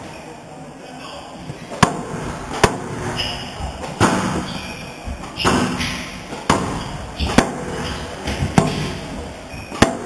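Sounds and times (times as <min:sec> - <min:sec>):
squash ball hit by rackets: 0:01.7 - 0:04.5, 0:05.3 - 0:09.1, 0:09.7 - 0:10.0
ball smacking off walls: 0:01.7 - 0:04.6, 0:05.4 - 0:09.0, 0:09.7 - 0:10.0.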